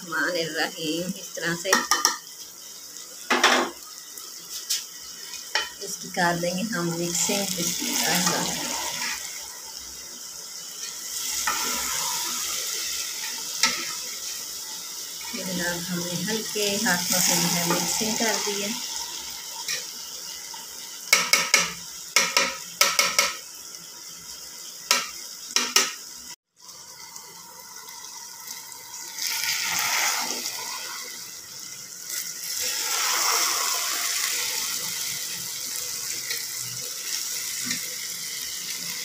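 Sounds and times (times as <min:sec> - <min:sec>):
food sizzling in a pot: 0:00.0 - 0:39.0.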